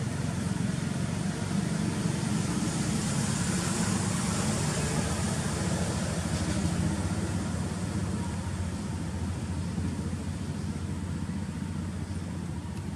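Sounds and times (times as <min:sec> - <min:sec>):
vehicle engine running: 0:00.0 - 0:12.9.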